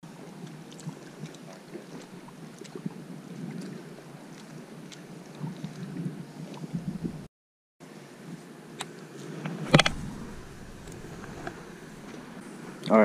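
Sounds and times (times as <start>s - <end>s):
wind buffeting microphone: 5.8s - 7.3s, 9.6s - 12.8s.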